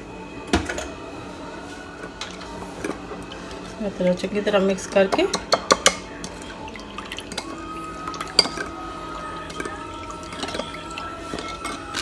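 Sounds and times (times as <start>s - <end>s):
spoon clinking against bowl: 8.2s - 8.8s.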